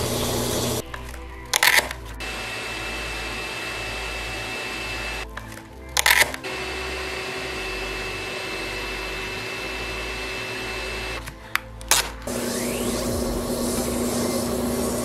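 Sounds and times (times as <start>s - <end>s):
wood lathe running: 0.0s - 0.8s, 2.2s - 5.3s, 6.2s - 11.3s, 12.2s - 15.0s
sandpaper on spinning wood: 12.3s - 15.0s.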